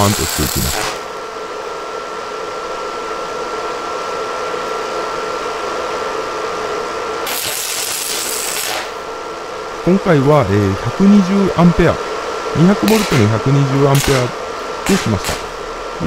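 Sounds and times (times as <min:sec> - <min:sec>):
welding arc crackling and hissing: 0:00.0 - 0:01.1, 0:07.2 - 0:09.2, 0:09.9 - 0:16.0
steady hum with high tone: 0:00.0 - 0:16.0.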